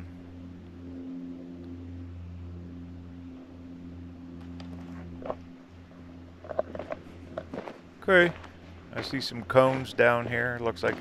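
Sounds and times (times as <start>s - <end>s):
steady low hum: 0.0s - 11.0s
footsteps crunching on rocks: 6.5s - 11.0s.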